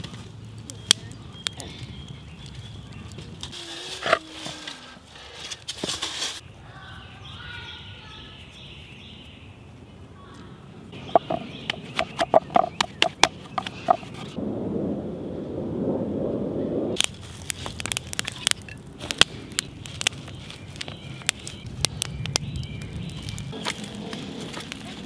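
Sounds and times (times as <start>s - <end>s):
wood fire crackling and popping: 0.0s - 6.4s, 16.9s - 25.0s.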